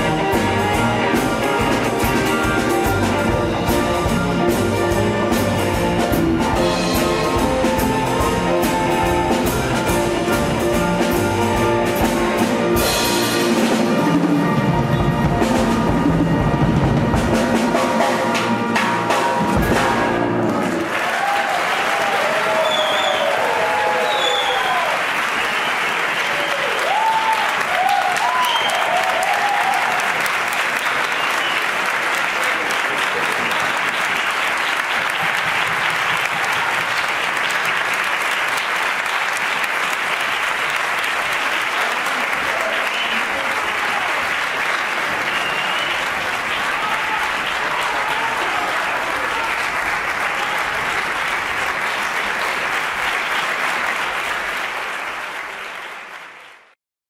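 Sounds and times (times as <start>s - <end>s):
audience applauding: 0.0s - 16.2s, 19.5s - 56.8s
audience cheering: 19.6s - 56.7s.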